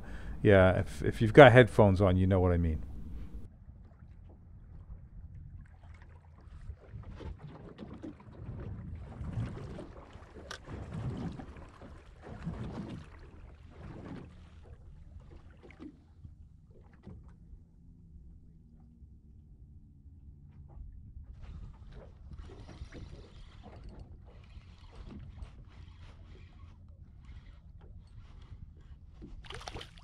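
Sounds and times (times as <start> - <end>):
electric motor low hum: 0.0 - 3.5
water lapping against boat hull: 0.0 - 19.0, 20.6 - 30.0.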